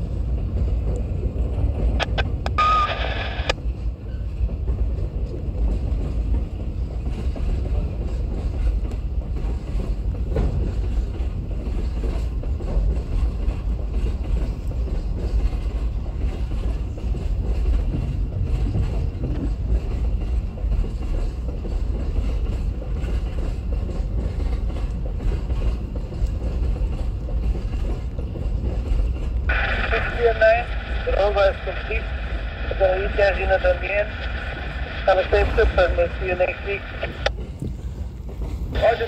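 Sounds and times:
freight train wagons rumbling: 0.0 - 39.0
train wheel clatter: 3.7 - 29.8, 36.2 - 39.0.

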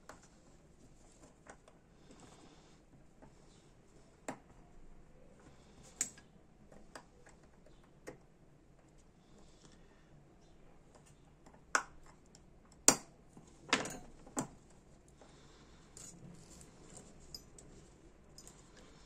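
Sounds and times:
small metal clicks and taps: 6.0 - 8.2
tools set down on bench: 13.7 - 14.5.

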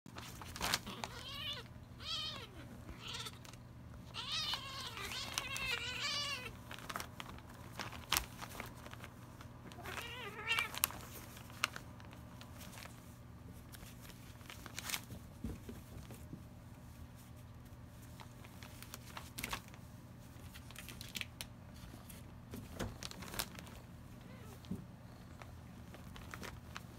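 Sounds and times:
kittens yowling: 0.8 - 3.4, 4.0 - 6.6.

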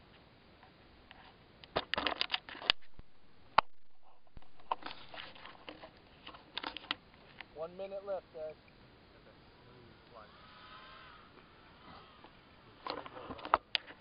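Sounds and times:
microphone handling rustle: 1.2 - 7.6, 12.2 - 14.0.

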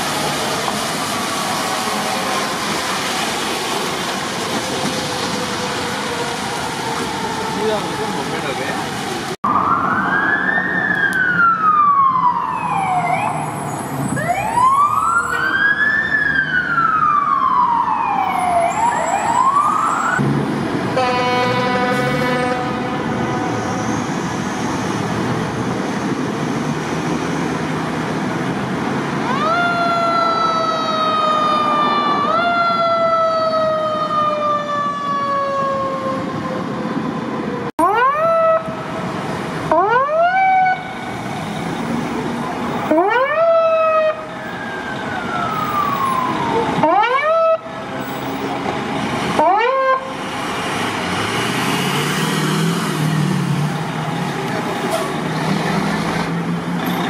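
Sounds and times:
fire engine siren wailing: 0.0 - 57.0
traffic noise: 0.0 - 57.0
air horn blast: 20.9 - 23.9.

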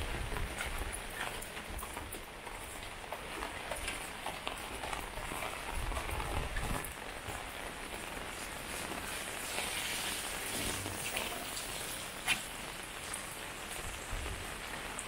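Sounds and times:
steady rain hiss: 0.0 - 15.0.

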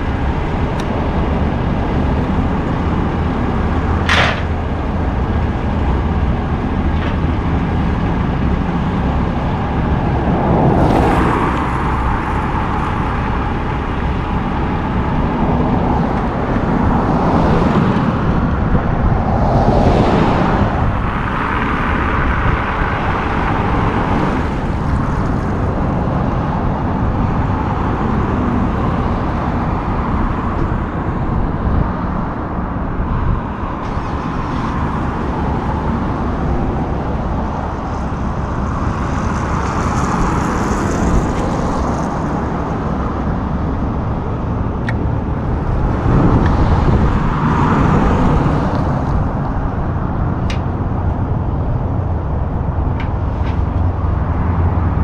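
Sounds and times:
truck engine running: 0.0 - 19.2
traffic noise: 0.0 - 55.0.

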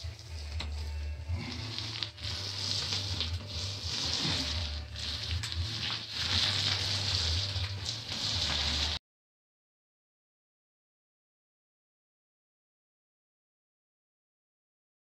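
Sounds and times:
paint roller crackling hiss: 1.4 - 9.0.

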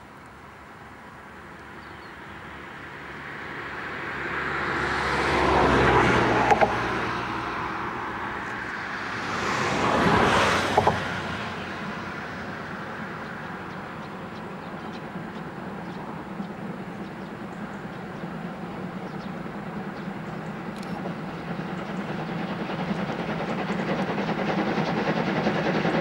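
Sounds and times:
vehicles passing close by: 1.6 - 22.0.

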